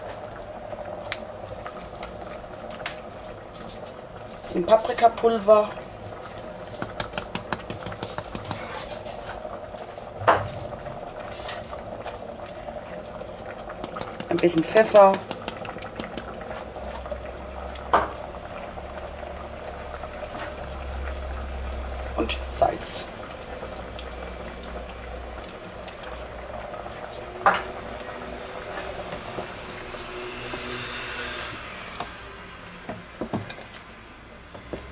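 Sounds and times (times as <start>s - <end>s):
sauce bubbles popping: 0.0s - 31.2s
knock on pot: 10.2s - 10.8s.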